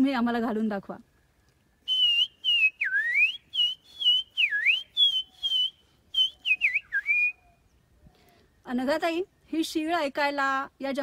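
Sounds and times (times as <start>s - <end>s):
person whistling bird call: 1.9s - 7.6s.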